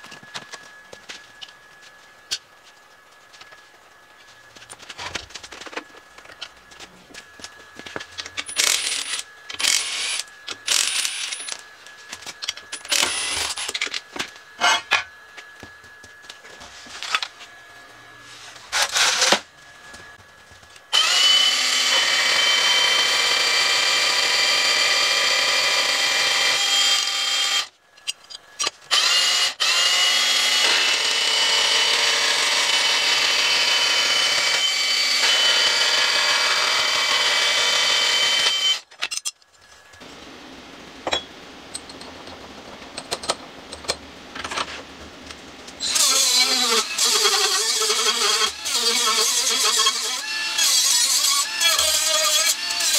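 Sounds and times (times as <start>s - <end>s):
band saw cutting steel: 8.3s - 15.6s, 18.6s - 19.5s, 20.9s - 27.7s, 28.6s - 39.3s, 45.8s - 52.9s
cordless power tool bursts: 20.9s - 27.7s, 28.9s - 38.8s
clicks and knocks of handling parts: 28.0s - 28.8s.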